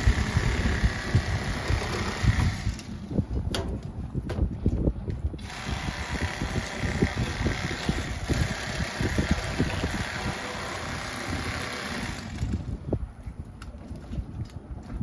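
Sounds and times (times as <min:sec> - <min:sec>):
electric fillet knife sawing fish: 0:00.0 - 0:02.8, 0:05.4 - 0:12.6.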